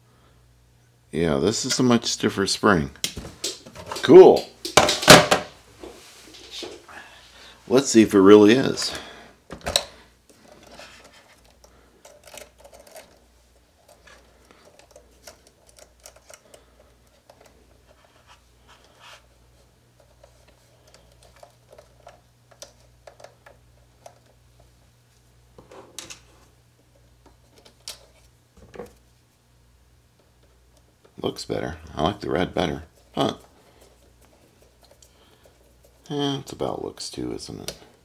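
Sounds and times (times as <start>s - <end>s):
small plastic parts clicking: 10.5s - 13.2s, 13.9s - 17.6s.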